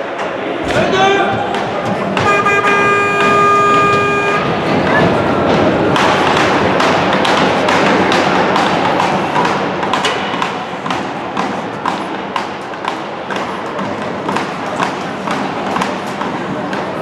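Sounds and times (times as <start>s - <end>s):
crowd roar: 0.0s - 17.0s
sharp knocking beat: 1.4s - 17.0s
music over arena speakers: 2.0s - 5.6s.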